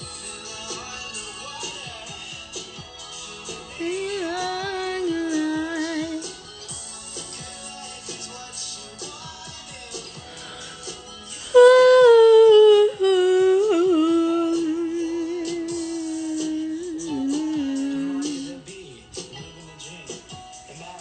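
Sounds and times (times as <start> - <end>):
quiet background music: 0.0 - 21.0
woman humming: 11.5 - 18.7.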